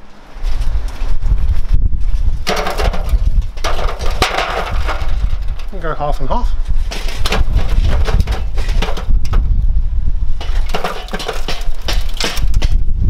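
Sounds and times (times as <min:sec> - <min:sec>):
charcoal clattering and crackling: 0:02.4 - 0:09.5, 0:10.4 - 0:12.8.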